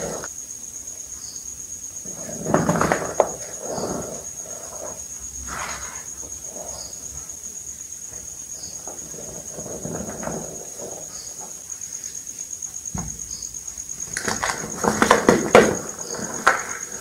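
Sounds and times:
hands crumbling chalk: 14.0s - 16.8s.

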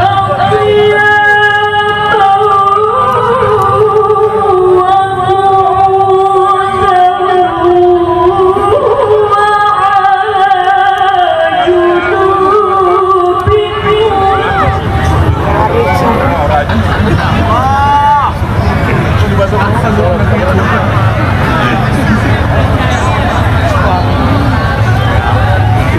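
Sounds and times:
woman reciting melodically: 0.0s - 16.2s.

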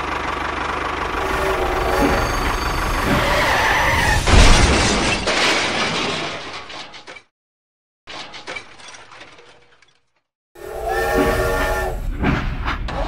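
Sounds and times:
loud crashing rushing noise: 1.1s - 5.2s.

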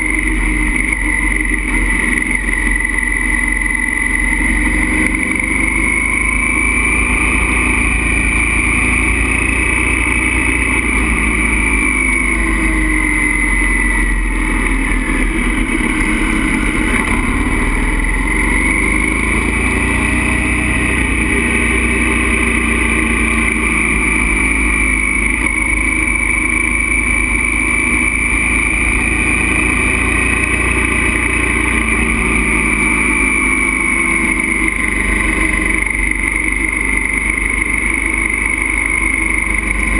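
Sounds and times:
motorcycle engine at road speed: 0.0s - 39.9s.

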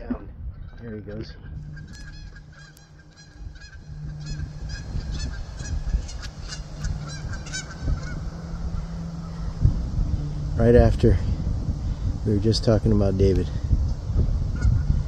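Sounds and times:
low rumble: 1.2s - 15.0s
bird calling rapidly: 1.4s - 10.6s.

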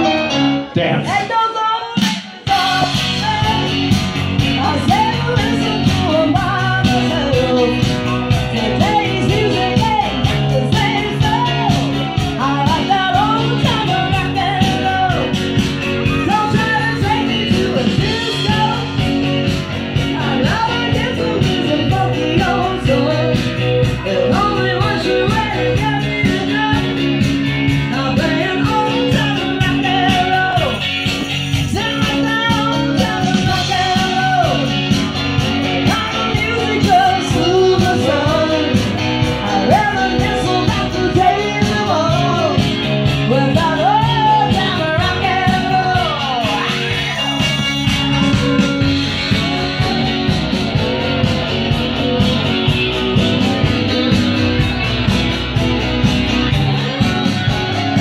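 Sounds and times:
electric guitar: 0.0s - 58.0s
singer: 0.0s - 58.0s
steady drum beat: 2.0s - 58.0s.

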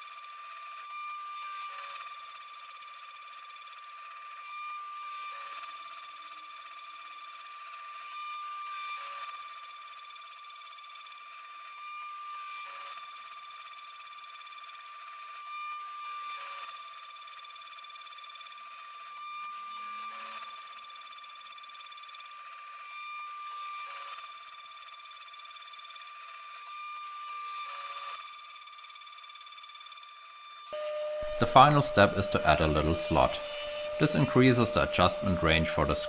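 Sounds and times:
milling machine cutting metal: 0.0s - 17.5s, 30.6s - 36.0s.

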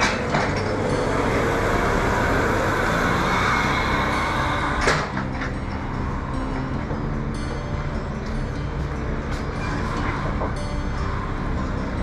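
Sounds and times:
forklift engine running: 0.0s - 12.0s
sharp clank: 4.8s - 5.6s.

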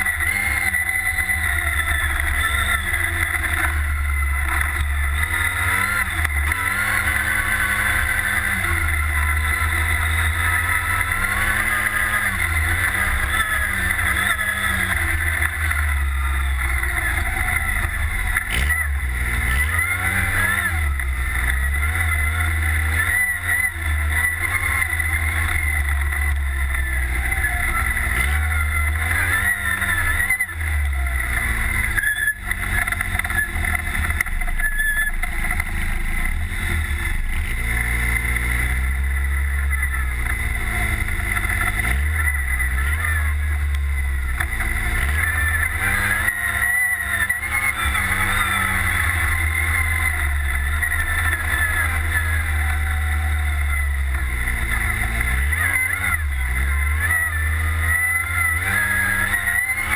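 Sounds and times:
buggy engine revving: 0.0s - 59.9s.

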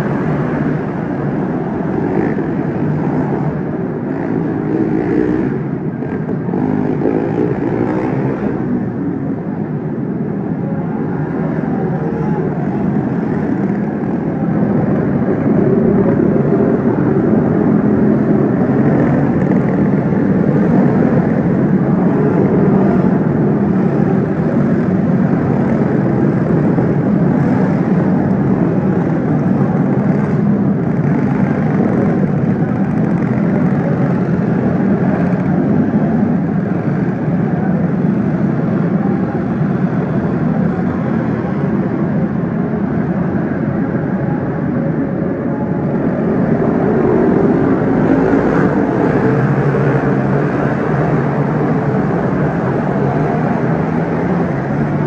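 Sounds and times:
racing kart engines buzzing: 0.0s - 55.0s.

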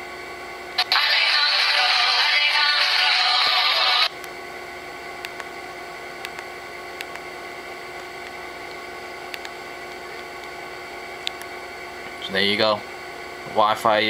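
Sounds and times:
steady hum: 0.0s - 14.0s
music with singing: 0.8s - 4.1s.

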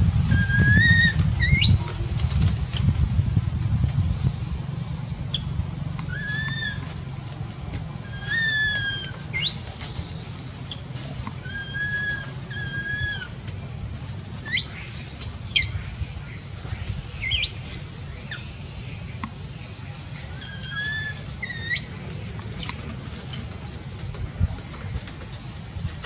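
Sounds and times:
steady low rumble: 0.0s - 26.0s
whistled animal calls: 0.3s - 2.7s, 4.0s - 7.0s, 8.0s - 13.4s, 14.4s - 15.9s, 17.2s - 23.4s.

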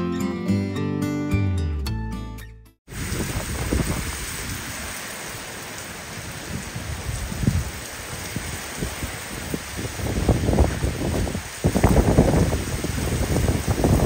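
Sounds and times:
wind buffeting microphone: 2.9s - 4.9s, 6.2s - 14.0s
heavy rain pouring: 2.9s - 14.0s.

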